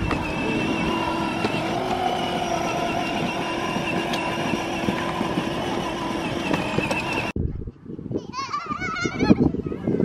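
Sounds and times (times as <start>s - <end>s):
electric motor whine: 0.0s - 7.4s
plastic wheels crunching on grit: 0.0s - 7.4s.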